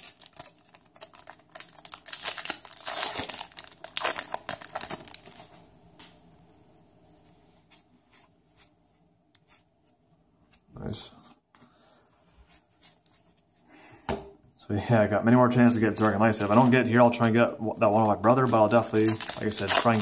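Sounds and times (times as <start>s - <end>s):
foil wrapper crinkling and tearing: 0.0s - 5.6s, 15.6s - 20.0s.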